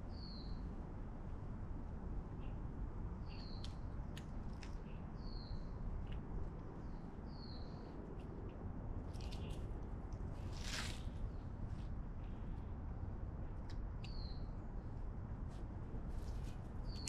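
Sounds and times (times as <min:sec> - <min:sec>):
faint chirps and ticks: 0:03.2 - 0:06.8.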